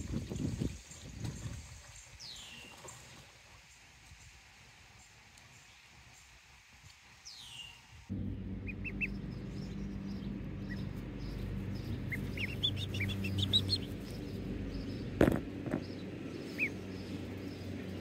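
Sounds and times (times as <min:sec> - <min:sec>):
steady low hum: 0:08.1 - 0:18.0
ducklings peeping: 0:08.2 - 0:18.0
sudden loud knock: 0:15.2 - 0:15.9.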